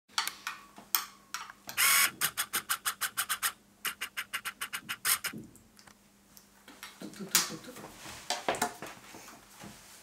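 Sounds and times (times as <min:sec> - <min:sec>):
brief hiss: 0:01.8 - 0:05.3
short sharp clicks: 0:01.8 - 0:05.4.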